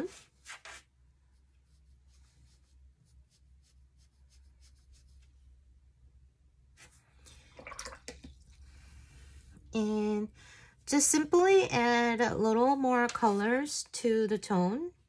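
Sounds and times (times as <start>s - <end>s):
brush scratching on paper: 0.0s - 5.6s
low room hum: 0.0s - 15.0s.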